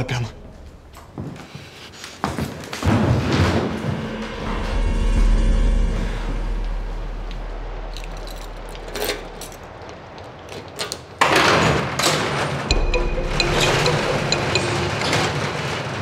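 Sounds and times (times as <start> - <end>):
low drone: 3.2 - 10.0
loud music: 12.7 - 15.6.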